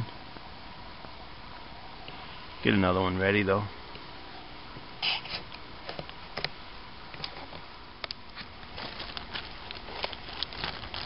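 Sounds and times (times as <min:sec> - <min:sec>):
packet rustling: 0:08.3 - 0:11.0.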